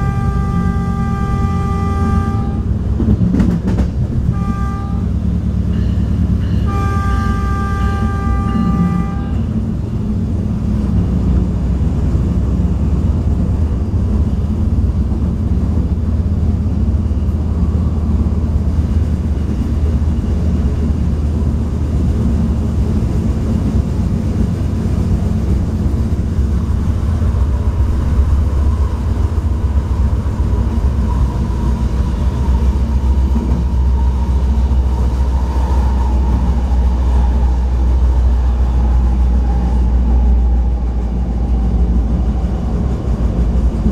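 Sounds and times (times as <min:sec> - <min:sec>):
train running low rumble: 0:00.0 - 0:43.9.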